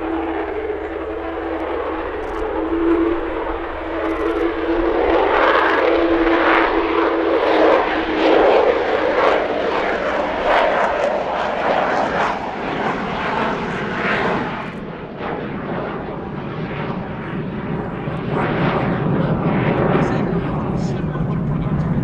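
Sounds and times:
jet engine roaring: 0.0 - 22.0
steady whine: 0.0 - 22.0.

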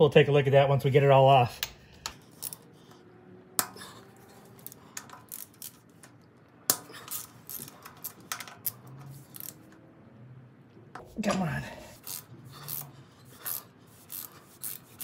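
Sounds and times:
ratchet wrench clicking: 2.4 - 2.6, 12.0 - 15.0.

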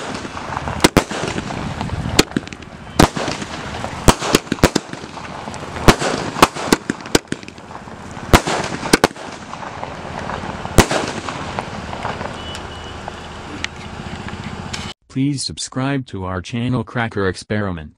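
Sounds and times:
firework bangs: 0.0 - 12.7.

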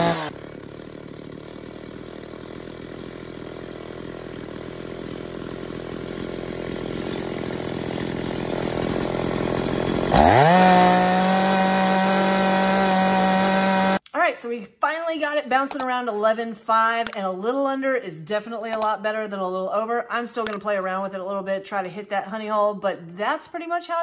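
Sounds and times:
chainsaw idling and revving: 0.0 - 14.0.

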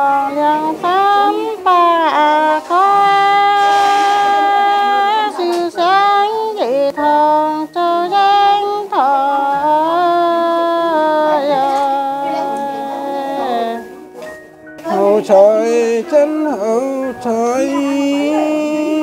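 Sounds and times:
woman singing unaccompanied: 0.0 - 14.2, 14.8 - 19.0.

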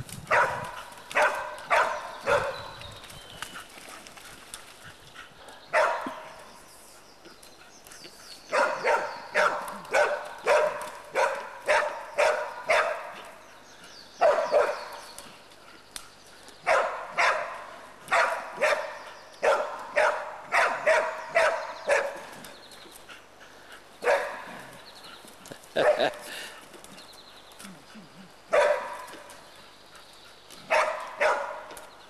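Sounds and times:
dogs barking sharply: 0.3 - 2.7, 5.7 - 6.4, 8.5 - 13.4, 14.2 - 15.0, 16.6 - 22.3, 24.0 - 24.6, 25.8 - 26.6, 28.5 - 29.3, 30.7 - 31.8.

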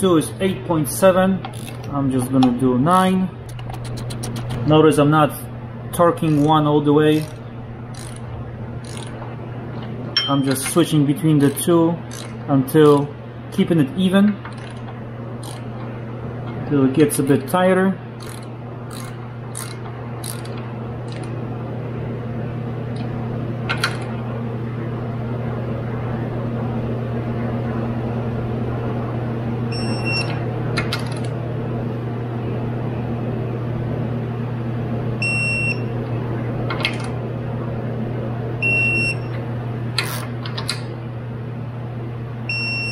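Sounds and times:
steady low hum: 0.0 - 42.9
socket ratchet clicking: 1.5 - 1.9, 6.2 - 6.6, 7.2 - 8.2, 8.8 - 9.2, 12.1 - 12.4, 14.5 - 15.6, 18.2 - 21.3.

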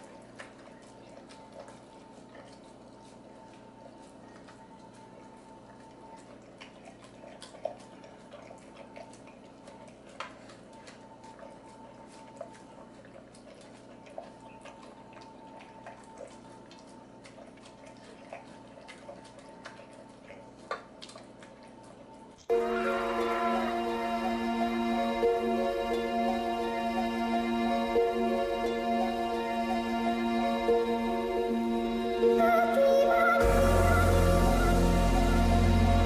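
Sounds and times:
dog licking and chewing: 0.0 - 22.5
steady low hum: 22.5 - 36.0.

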